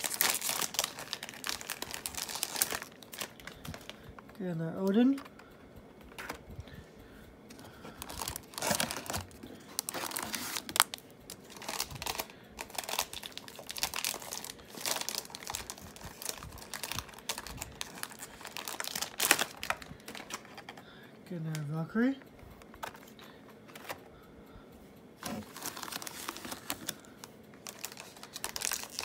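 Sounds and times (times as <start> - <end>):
foil pack crinkling: 0.0 - 5.4, 7.5 - 20.8, 25.2 - 29.0.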